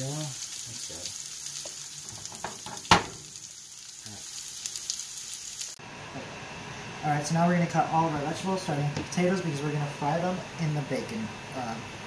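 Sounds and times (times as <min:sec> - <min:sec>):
batter sizzling in hot pan: 0:00.0 - 0:05.8.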